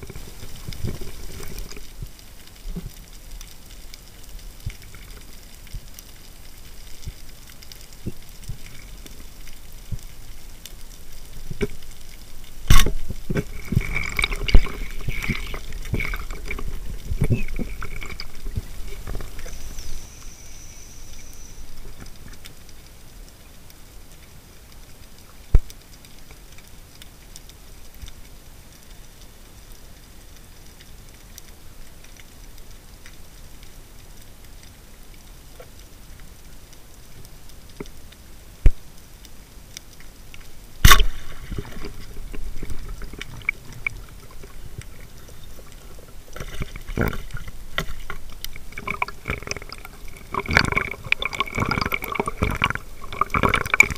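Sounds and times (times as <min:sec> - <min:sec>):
water bubbling: 0:00.0 - 0:23.0, 0:40.8 - 0:53.9
faint underwater crackle: 0:00.0 - 0:53.9.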